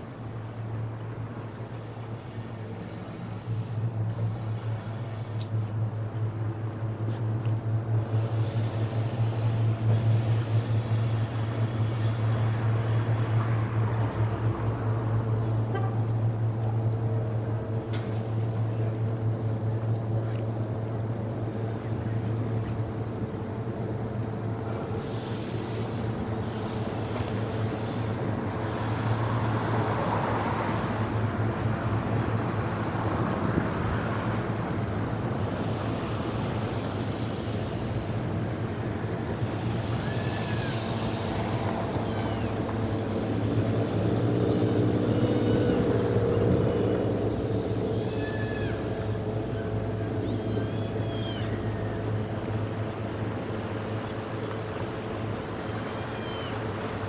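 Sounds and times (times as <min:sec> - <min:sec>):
engine hum: 0:00.0 - 0:57.0.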